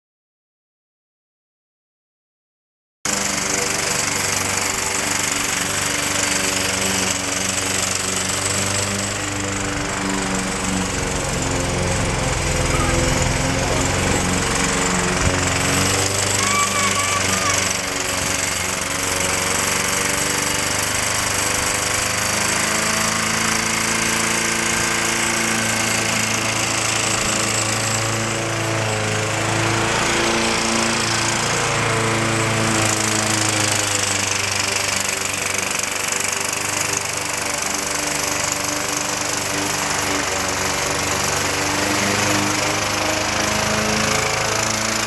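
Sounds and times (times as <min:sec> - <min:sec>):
lawn mower engine running: 0:03.1 - 0:45.0.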